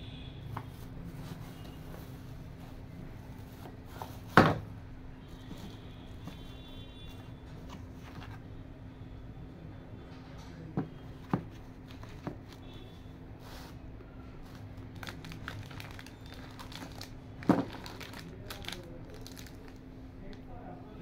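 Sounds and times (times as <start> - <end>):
plastic wrapping crinkling: 14.4 - 19.8.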